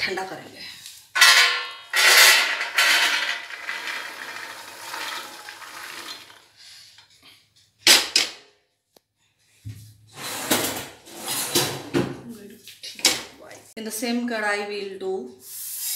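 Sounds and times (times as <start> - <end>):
peanuts clattering on metal: 1.2 - 5.9.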